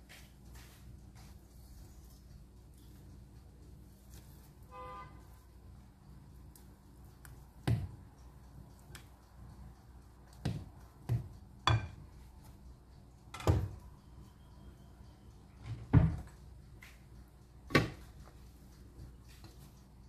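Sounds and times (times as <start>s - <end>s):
kitchen items knocking and clunking: 10.4s - 12.0s, 13.3s - 13.8s, 15.7s - 16.4s.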